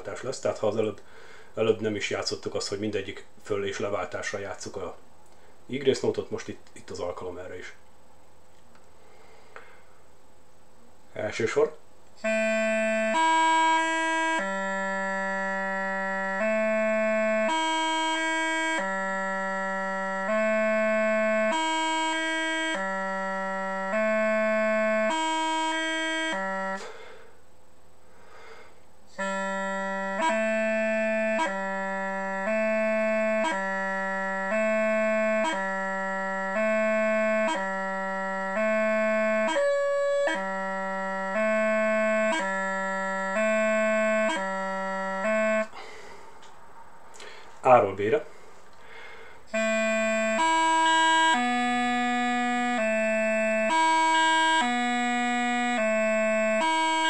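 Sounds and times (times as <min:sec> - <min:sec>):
practice chanter playing: 0:12.2 - 0:27.3, 0:29.1 - 0:46.4, 0:48.3 - 0:57.0.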